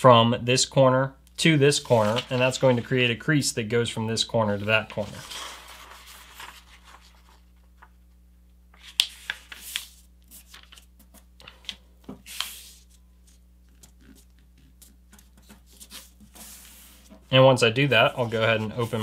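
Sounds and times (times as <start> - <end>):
foil paper rustling and crinkling: 5.0 - 7.9, 8.8 - 13.4.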